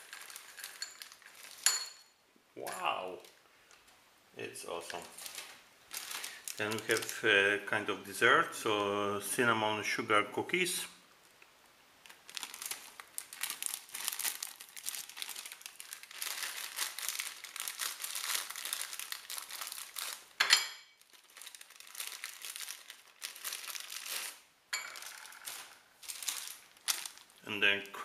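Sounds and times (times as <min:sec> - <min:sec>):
foil snack pouch crinkling: 0:00.0 - 0:01.6, 0:04.9 - 0:07.2, 0:12.0 - 0:20.4, 0:21.0 - 0:27.4.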